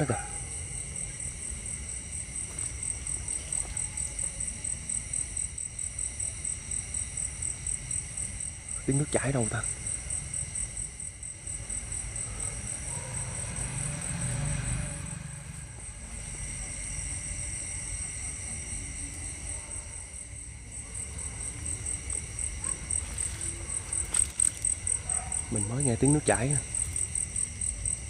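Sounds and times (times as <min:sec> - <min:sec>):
insects chirring: 0:00.0 - 0:28.0
low rumbling noise: 0:08.8 - 0:17.3.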